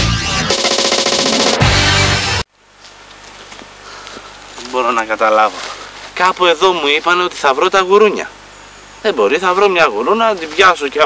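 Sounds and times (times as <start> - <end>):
tv title music: 0.0 - 2.5
faint outdoor background: 0.0 - 11.0.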